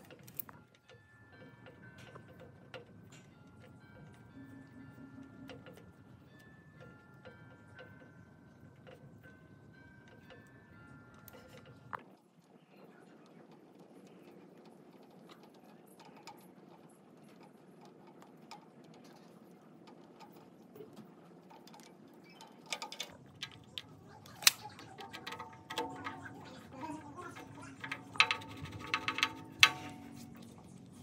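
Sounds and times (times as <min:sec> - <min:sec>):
knocks and clinks with ringing: 0:00.0 - 0:12.1, 0:22.1 - 0:31.0
metallic taps of tools: 0:22.6 - 0:30.7.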